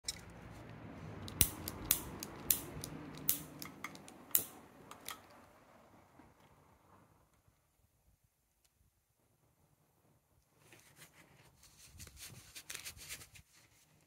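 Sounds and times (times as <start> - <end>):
lighter igniter clicks: 1.3 - 5.2.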